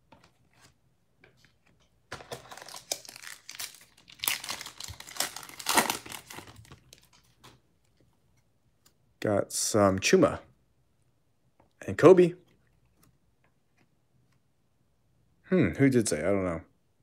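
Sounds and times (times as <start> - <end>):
foil wrapper tearing and crinkling: 2.4 - 7.1.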